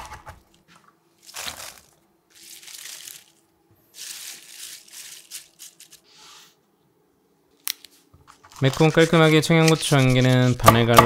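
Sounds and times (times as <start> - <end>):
green onion stalks rustling: 1.1 - 6.4.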